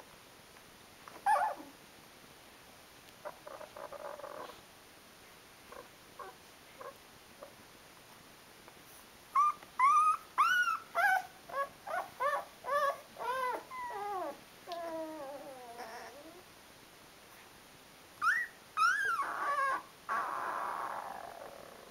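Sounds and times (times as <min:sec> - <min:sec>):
puppy whimpering: 0:01.2 - 0:01.8, 0:03.2 - 0:04.6, 0:05.7 - 0:07.5, 0:09.4 - 0:16.4, 0:18.2 - 0:21.9.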